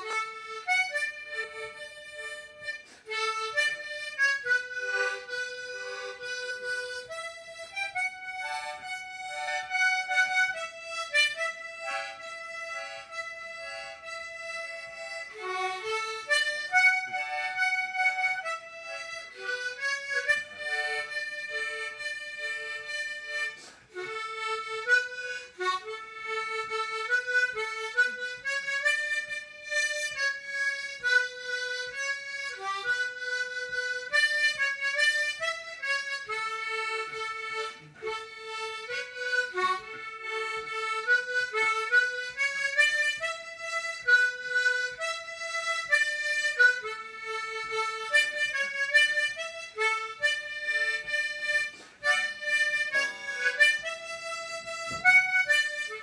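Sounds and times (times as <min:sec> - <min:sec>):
tremolo harmonica melody: 0:00.0 - 0:56.0.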